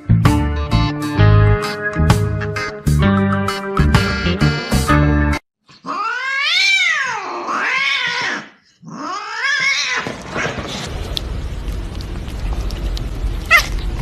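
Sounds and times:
cat meowing: 0:05.8 - 0:10.1, 0:13.5 - 0:13.8.

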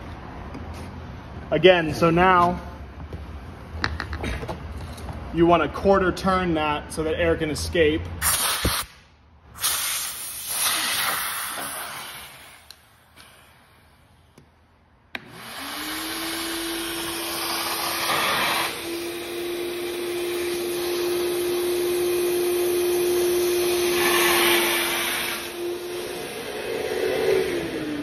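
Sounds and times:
vacuum motor whine: 0:15.2 - 0:28.0.

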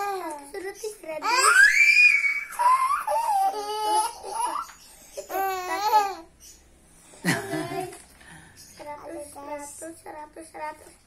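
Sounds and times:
girl laughing and squealing: 0:01.4 - 0:03.6.

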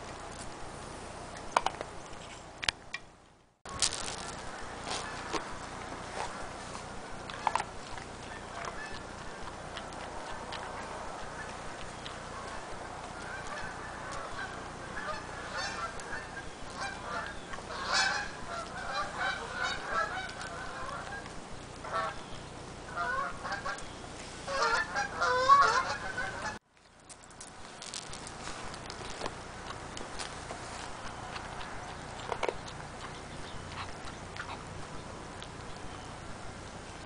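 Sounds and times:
dog crunching dry kibble: 0:03.7 - 0:14.7, 0:26.7 - 0:36.0.

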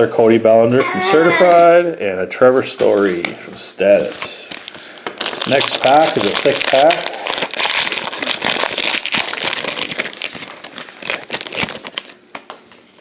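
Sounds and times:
foil wrapper crinkling: 0:04.1 - 0:12.8.

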